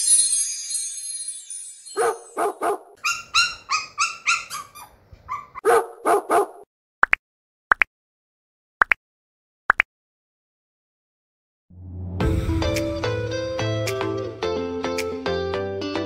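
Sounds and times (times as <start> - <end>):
high-pitched dog yips: 2.0 - 6.6
dog barking: 2.0 - 6.7.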